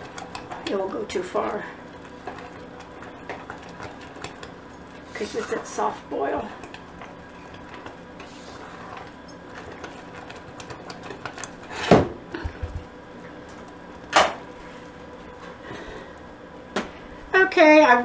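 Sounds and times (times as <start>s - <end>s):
spatula scraping fudge in saucepan: 0.0s - 11.9s.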